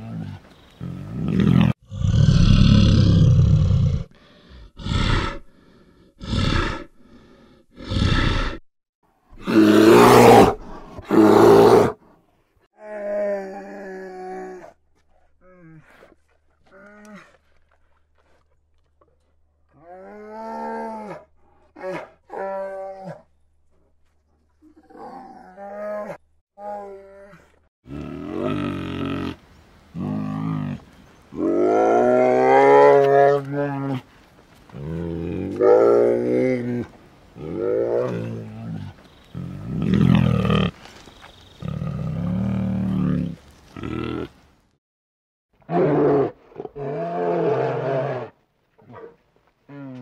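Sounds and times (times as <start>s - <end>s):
bear growl: 0.0s - 8.6s.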